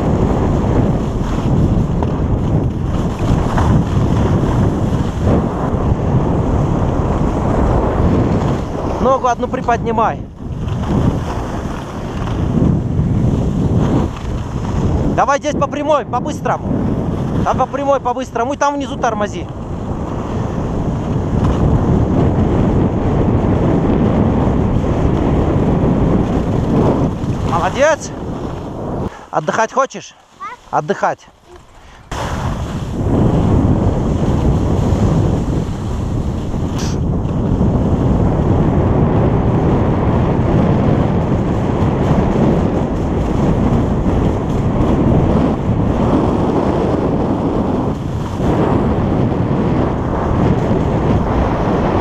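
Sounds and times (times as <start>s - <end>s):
skis sliding over snow: 0.0s - 9.6s, 10.4s - 15.2s, 18.6s - 22.1s, 24.8s - 38.2s, 46.0s - 48.7s
wind buffeting microphone: 0.0s - 52.0s.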